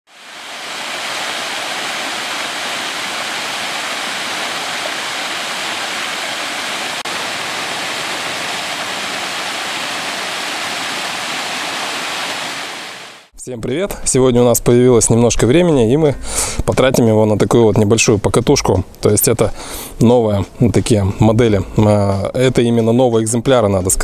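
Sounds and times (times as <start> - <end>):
waterfall pouring into pool: 0.1 - 13.3.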